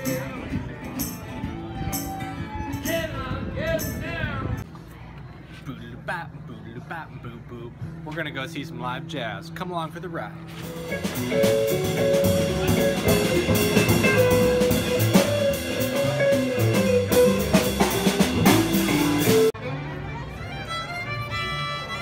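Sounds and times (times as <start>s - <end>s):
jazz band playing: 0.0s - 3.2s, 10.4s - 22.0s
solo violin: 19.6s - 22.0s.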